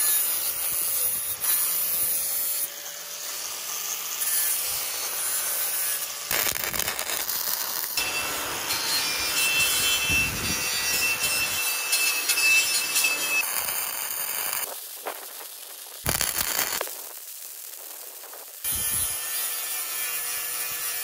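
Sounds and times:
welder arc crackling and sizzling: 0.0 - 21.0.

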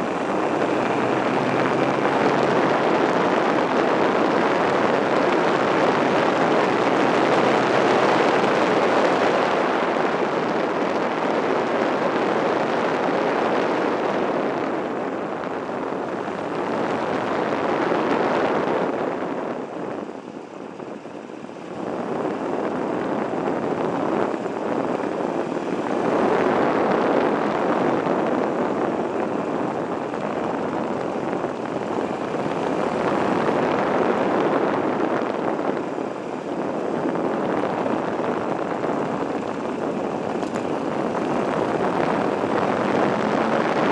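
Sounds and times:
wind rush: 0.0 - 43.9
motorcycle engine running: 36.4 - 43.9.

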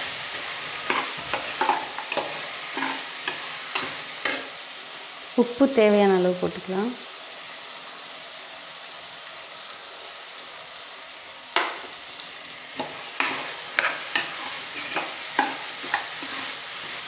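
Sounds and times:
steel spatula scraping a pan: 0.0 - 4.6, 12.8 - 17.0
food sizzling in a pot: 0.0 - 17.0.

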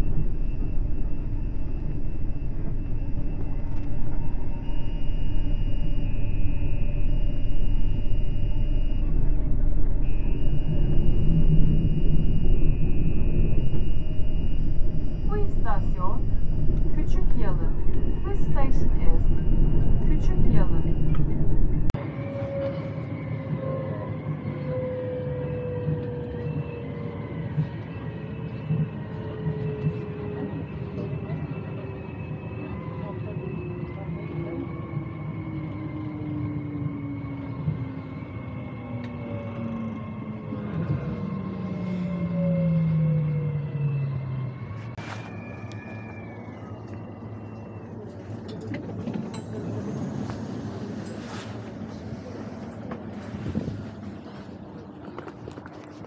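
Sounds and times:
motor whine: 0.0 - 21.9
vehicle running rumble: 0.0 - 22.0.

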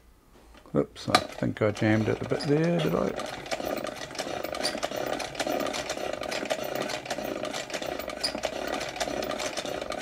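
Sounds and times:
toy sewing machine clattering: 1.1 - 10.0.

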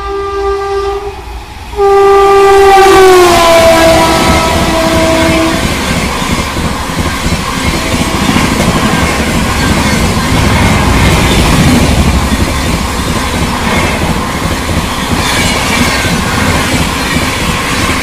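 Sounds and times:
train horn: 0.0 - 6.0
train coaches rushing past: 2.8 - 18.0.

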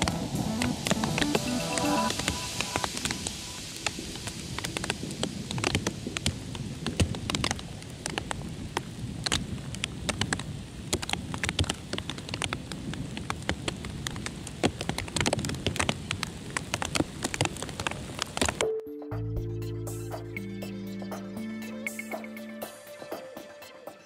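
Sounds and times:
low rushing noise: 0.0 - 5.2
raindrop hits: 0.0 - 18.6.

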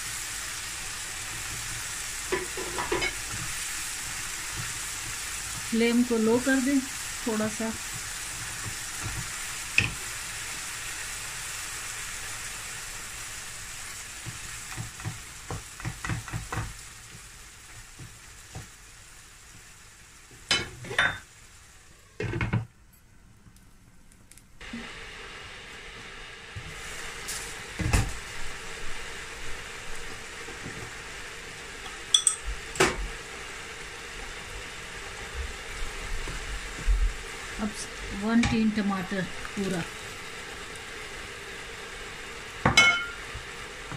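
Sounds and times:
food sizzling in a frying pan: 0.0 - 22.8, 24.6 - 43.9
glass lid clinking: 32.1 - 32.4, 42.7 - 43.2.

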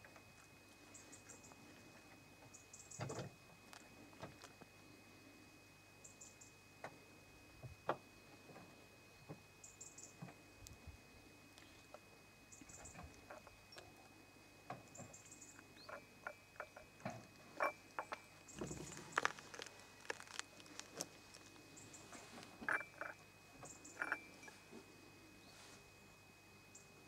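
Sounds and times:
cats chewing and licking: 3.6 - 4.8, 16.6 - 23.2.

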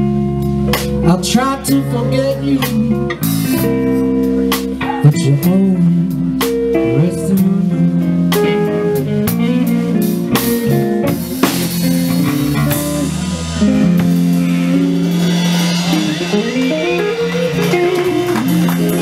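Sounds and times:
electric bass: 0.0 - 19.0
electric guitar: 0.0 - 19.0
drum kit with cymbal crashes: 2.6 - 5.6, 8.3 - 19.0.

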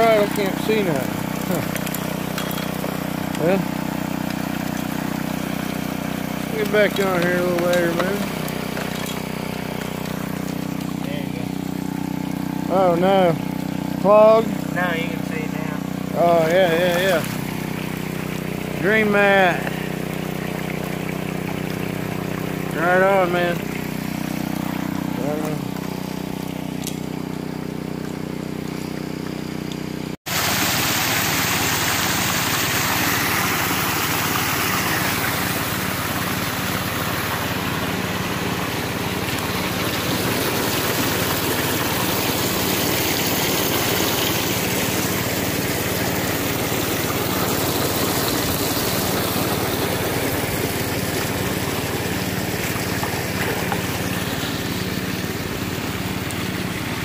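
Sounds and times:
small gas engine running: 0.0 - 57.0
water rushing over sluice: 0.0 - 57.0.

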